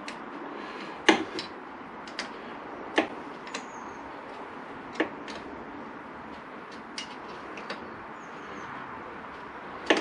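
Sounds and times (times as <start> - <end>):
hand tools clicking: 1.0 - 3.7.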